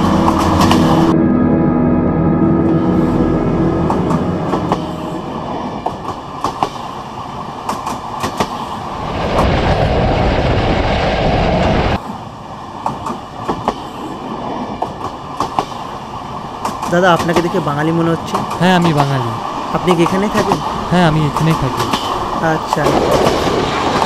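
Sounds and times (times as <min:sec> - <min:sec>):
loud rushing rumble: 0:00.0 - 0:06.4, 0:08.9 - 0:12.0
train wheels clicking over rails: 0:05.8 - 0:09.5, 0:12.0 - 0:24.0.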